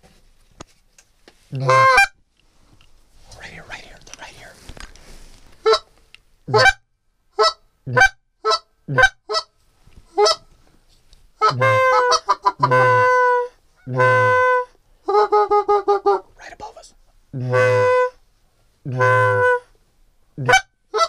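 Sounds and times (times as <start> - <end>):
goose call honks: 1.5 - 2.1, 6.5 - 6.8, 7.4 - 9.5, 11.4 - 16.2, 17.4 - 18.2, 18.9 - 19.7, 20.4 - 21.0.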